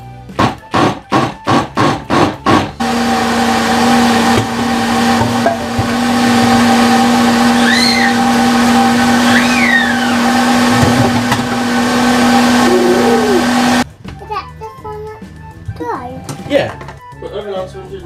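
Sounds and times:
blender motor running: 1.5s - 13.8s.

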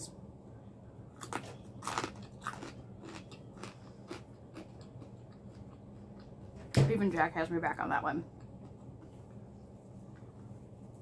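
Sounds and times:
person crunching fried food: 1.1s - 6.4s.

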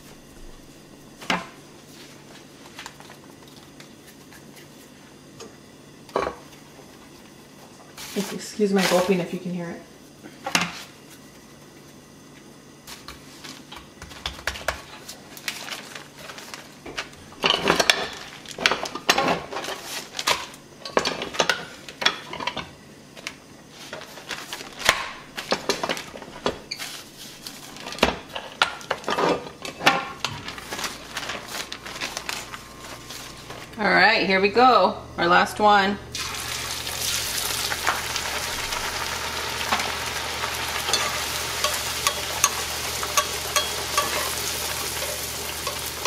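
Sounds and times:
plastic liner rustling: 30.3s - 33.8s.

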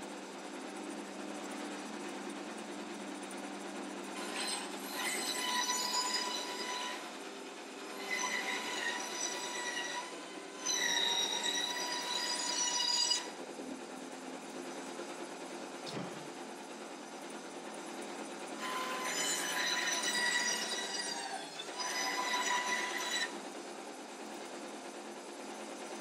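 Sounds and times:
band saw cutting wood: 4.2s - 13.4s, 18.6s - 23.5s.

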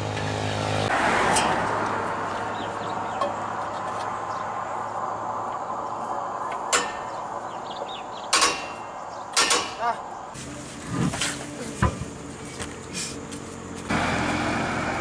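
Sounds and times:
steady background noise: 0.0s - 15.0s
wheel brace clanking on wheel nuts: 6.5s - 7.3s, 8.2s - 9.9s.

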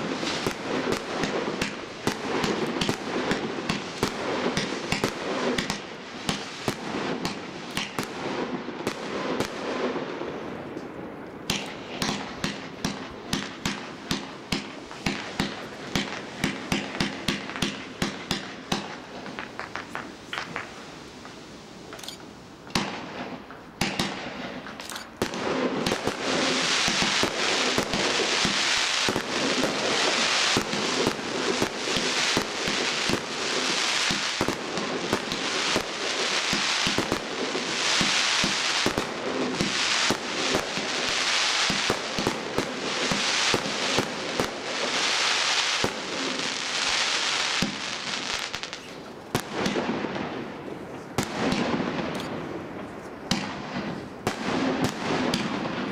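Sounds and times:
firework cake shots firing: 0.0s - 8.2s, 22.0s - 50.2s, 53.3s - 55.9s.

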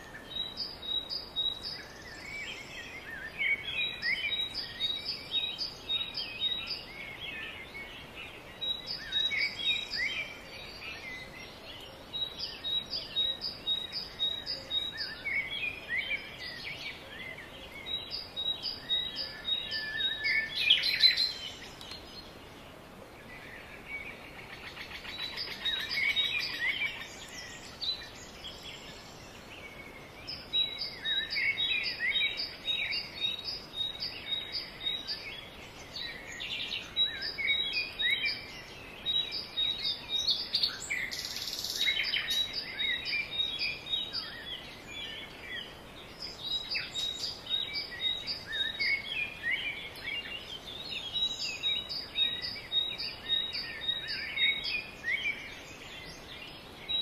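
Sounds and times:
background noise: 0.0s - 57.0s
rustle: 0.0s - 57.0s
small birds chirping and singing: 0.0s - 57.0s.

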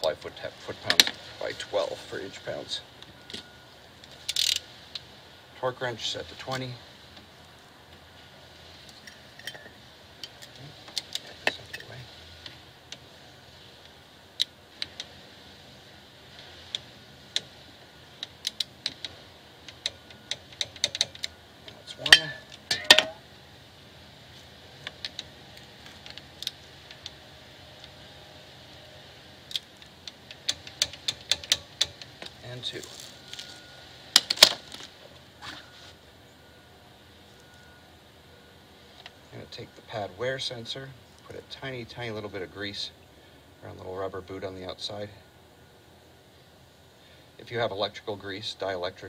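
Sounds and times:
wrench clicking on bolts: 4.3s - 4.6s, 18.2s - 21.3s, 29.5s - 32.4s
metallic clack: 22.1s - 23.2s.

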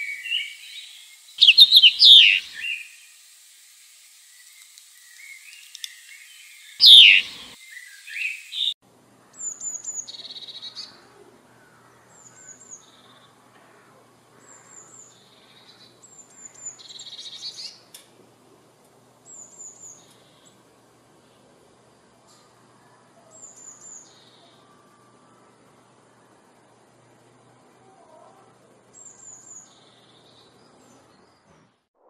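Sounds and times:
blue tit singing: 0.0s - 2.8s, 6.7s - 8.7s
chaffinch calling: 0.0s - 2.9s, 5.1s - 8.7s.

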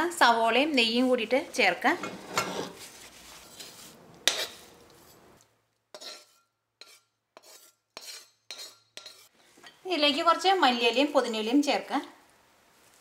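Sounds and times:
metal spoon scraping steel pans: 1.9s - 5.2s, 6.0s - 9.3s.

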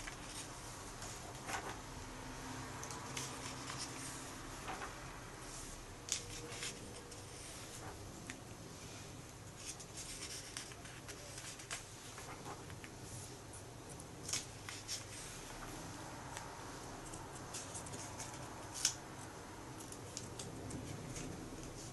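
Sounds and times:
faint steady hum: 0.0s - 21.9s
comic book pages turning: 2.8s - 8.1s, 9.5s - 13.2s, 14.2s - 19.0s.

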